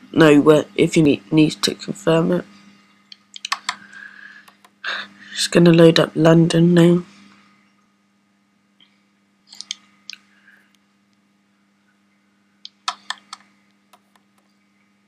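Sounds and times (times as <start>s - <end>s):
touchscreen typing clicks and taps: 3.4s - 3.8s, 12.7s - 14.5s.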